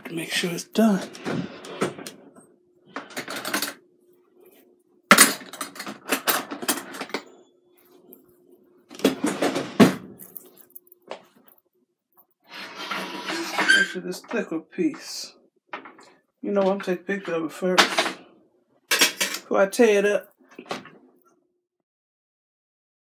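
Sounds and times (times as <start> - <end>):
faint steady hum: 0.0 - 13.1
metal pieces clinking: 10.2 - 12.3.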